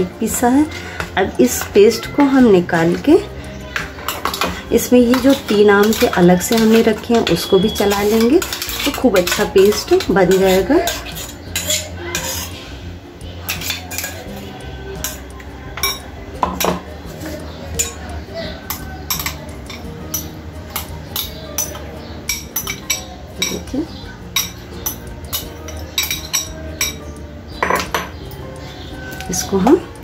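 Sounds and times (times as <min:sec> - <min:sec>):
metal spoon clinking on glass: 0:04.0 - 0:12.5, 0:13.4 - 0:15.2, 0:15.8 - 0:16.8, 0:17.8 - 0:23.7, 0:24.4 - 0:27.0.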